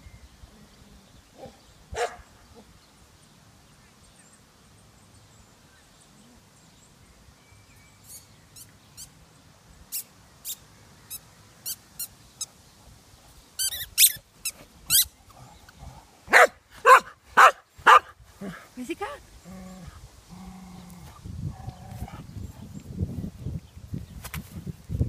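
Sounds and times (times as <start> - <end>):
dog barking: 1.9 - 2.2, 16.3 - 18.1
squeaky toy squeaks: 13.6 - 15.1.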